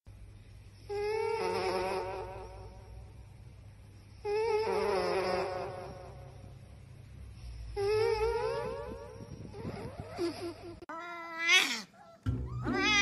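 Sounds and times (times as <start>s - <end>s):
puppy whining: 7.8s - 13.0s.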